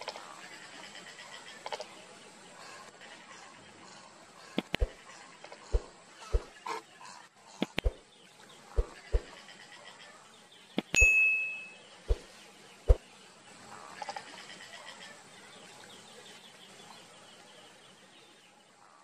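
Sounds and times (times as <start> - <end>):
mouse clicks: 4.6 - 5.0, 7.6 - 8.0, 10.8 - 11.1
high rhythmic chirping: 10.8 - 12.3
bell-like ding: 11.0 - 11.8.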